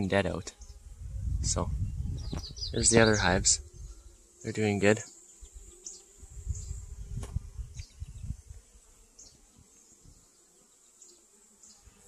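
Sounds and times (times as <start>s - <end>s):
bees buzzing: 0.0s - 12.0s
low rumble on microphone: 0.7s - 4.1s, 6.2s - 8.6s.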